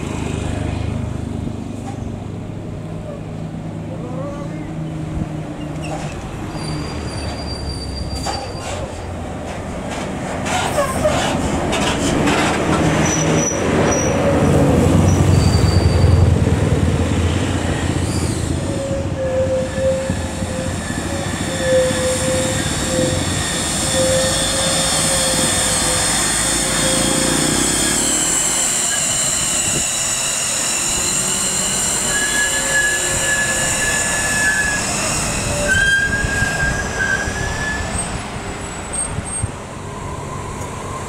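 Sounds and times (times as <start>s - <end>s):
high-pitched whistling whine: 18.0s - 38.1s.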